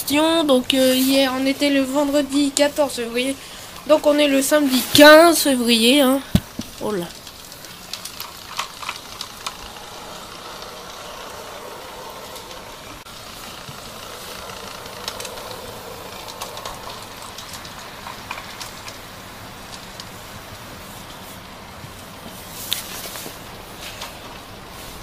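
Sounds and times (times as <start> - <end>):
steady hiss: 0.0 - 25.0
electric motor whirring: 7.4 - 18.6.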